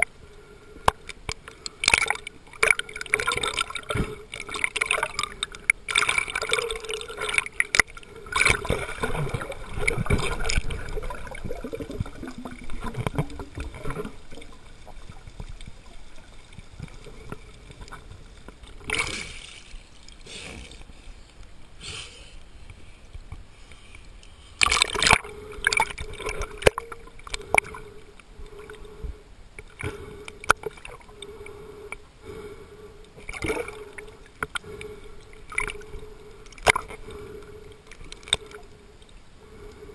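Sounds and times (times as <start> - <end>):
water splashing: 0.9 - 21.0, 24.6 - 28.8, 33.2 - 38.8
muffled underwater gurgling: 1.6 - 18.2.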